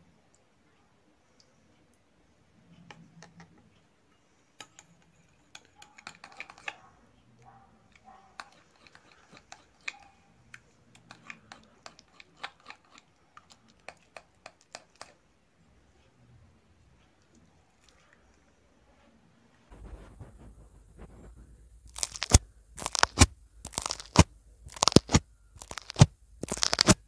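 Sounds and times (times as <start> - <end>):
metal spoon stirring slime: 4.6 - 6.9, 7.9 - 15.2, 21.9 - 27.0.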